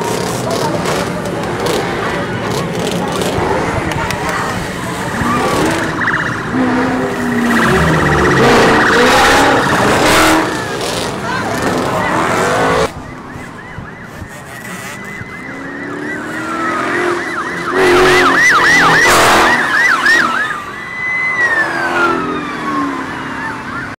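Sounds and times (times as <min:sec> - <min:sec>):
car engine revving: 0:00.0 - 0:12.9, 0:14.5 - 0:20.5
police siren wailing and yelping: 0:04.4 - 0:24.0.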